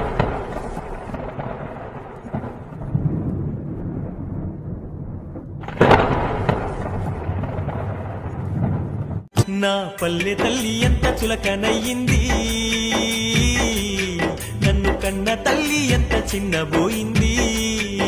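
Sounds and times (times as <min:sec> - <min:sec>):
thunder-like crashes rumbling: 0:00.0 - 0:09.3.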